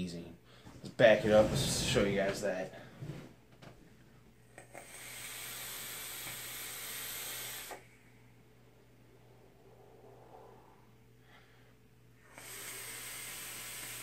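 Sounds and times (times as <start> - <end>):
vape coil hissing and sizzling: 4.6 - 7.8, 12.3 - 14.0.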